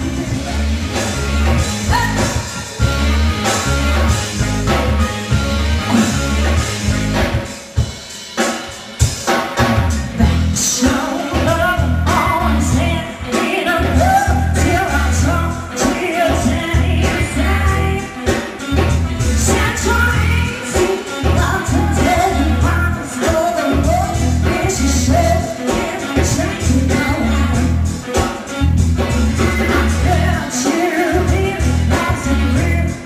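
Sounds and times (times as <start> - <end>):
pop-rock band playing: 0.0 - 33.0
woman singing: 1.8 - 2.8, 10.1 - 33.0.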